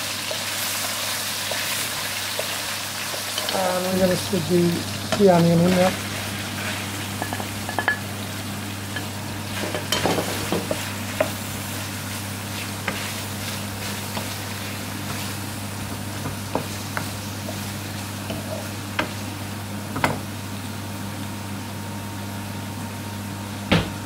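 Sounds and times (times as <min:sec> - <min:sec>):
onions sizzling in oil: 0:00.0 - 0:23.8.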